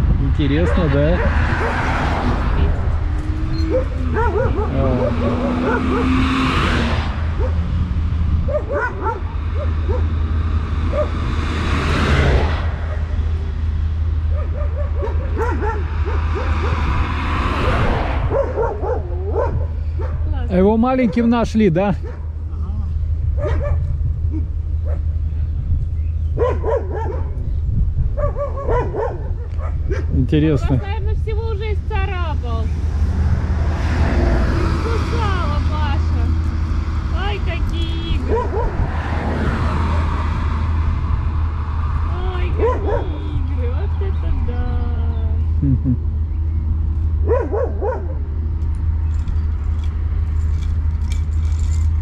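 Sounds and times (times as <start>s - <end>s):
steady low rumble: 0.0s - 52.0s
dogs barking: 0.4s - 2.9s, 3.5s - 6.6s, 7.3s - 7.7s, 8.4s - 10.2s, 10.8s - 11.3s, 14.2s - 22.4s, 23.3s - 25.2s, 26.3s - 31.0s, 38.2s - 39.9s, 42.5s - 43.4s, 47.2s - 48.4s.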